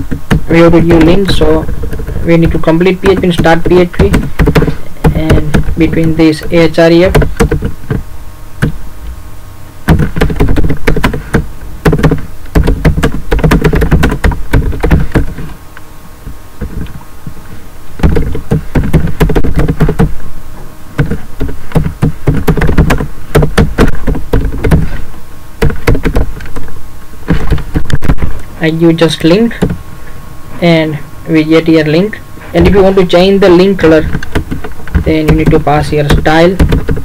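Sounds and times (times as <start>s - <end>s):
computer keyboard typing: 1.0s - 8.0s, 9.9s - 15.4s, 18.0s - 20.2s, 21.0s - 25.0s, 32.6s - 37.0s.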